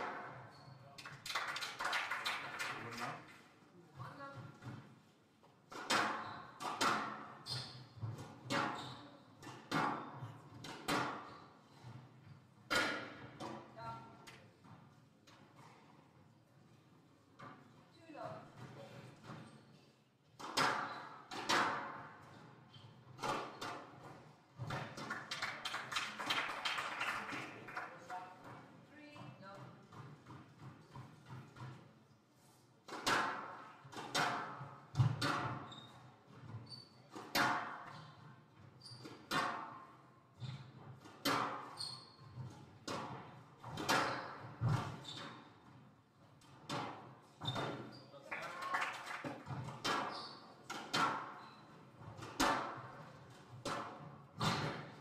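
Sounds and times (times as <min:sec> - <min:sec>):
squash ball hits echoing: 0:05.7 - 0:07.4, 0:12.7 - 0:13.6, 0:20.4 - 0:22.1, 0:32.9 - 0:35.7, 0:37.3 - 0:37.9, 0:53.6 - 0:55.0
squash ball hitting rackets and walls: 0:05.7 - 0:15.9, 0:18.6 - 0:25.4, 0:28.2 - 0:31.8, 0:32.8 - 0:48.0, 0:49.3 - 0:55.0.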